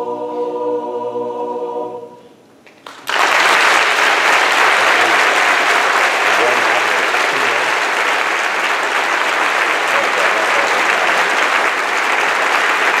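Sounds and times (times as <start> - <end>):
audience applauding: 2.8 - 13.0.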